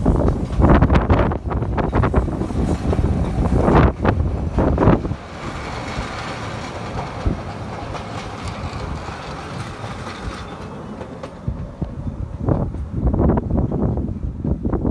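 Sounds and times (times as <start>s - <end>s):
train carriages rumbling past: 0.0s - 14.9s
wheel clicks over rail joints: 2.8s - 12.9s.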